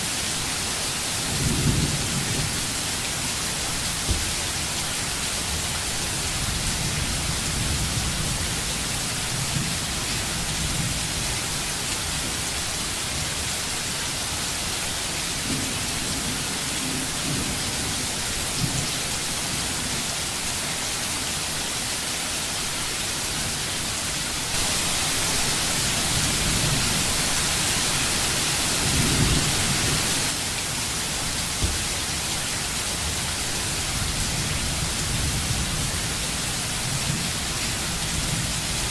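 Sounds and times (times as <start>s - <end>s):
steady rain: 0.0s - 38.9s.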